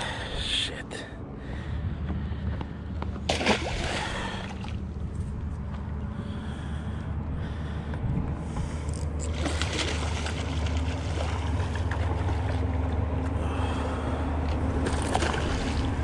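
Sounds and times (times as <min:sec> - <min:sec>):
steady low rumble: 0:00.0 - 0:16.0
fish splashing in water: 0:03.3 - 0:04.8, 0:09.3 - 0:13.6, 0:14.8 - 0:16.0.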